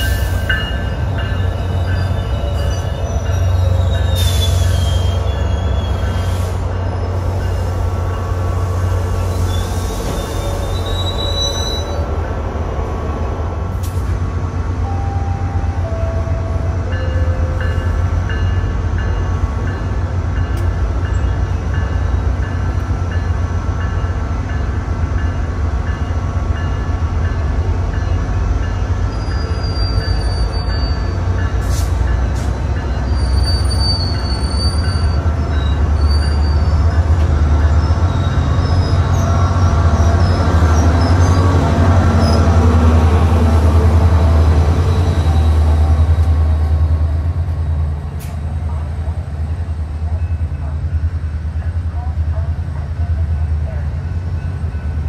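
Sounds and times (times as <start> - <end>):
wheels squealing on rails: 0.0 - 12.1, 27.9 - 42.7
train locomotive droning: 0.0 - 55.0.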